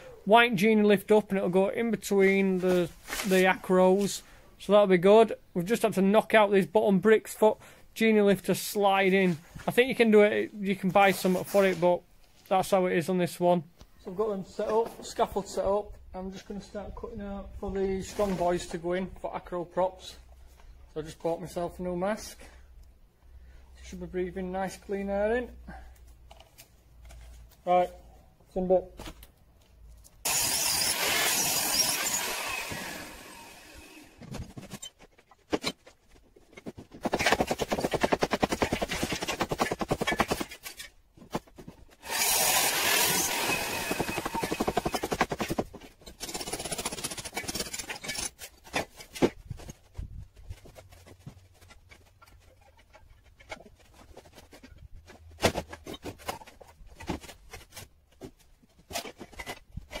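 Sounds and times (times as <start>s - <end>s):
power tool cutting brickwork: 30.2s - 34.4s, 42.0s - 48.3s.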